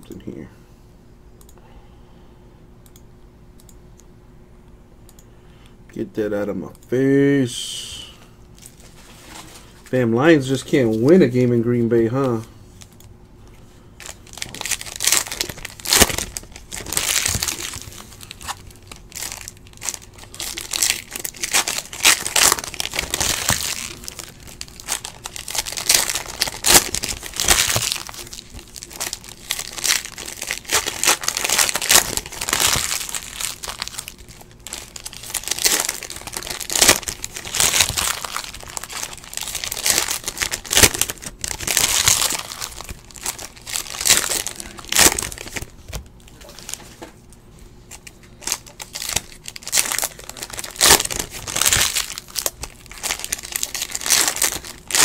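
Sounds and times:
foil wrappers crinkling and tearing: 14.0s - 47.0s, 47.9s - 55.0s.

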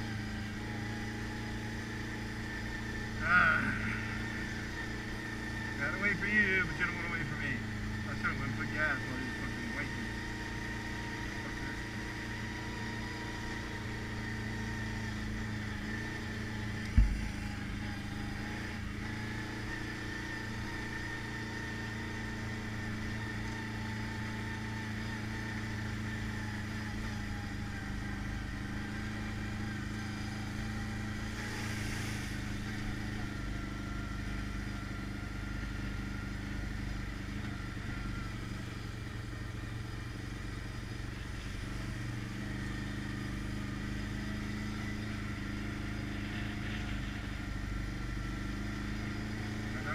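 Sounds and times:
atv engine running: 0.0s - 49.9s
sharp thump: 16.9s - 17.2s.

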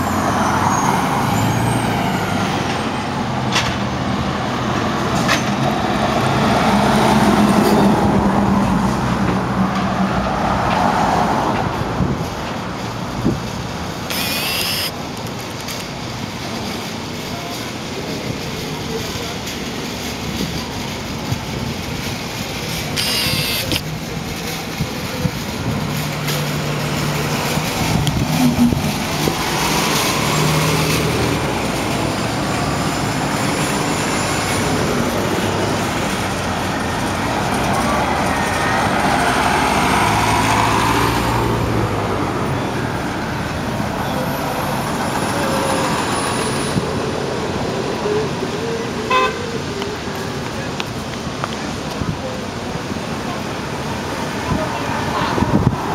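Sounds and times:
buses driving past: 0.0s - 55.9s
electric motor whine: 14.1s - 14.9s, 23.0s - 23.8s.

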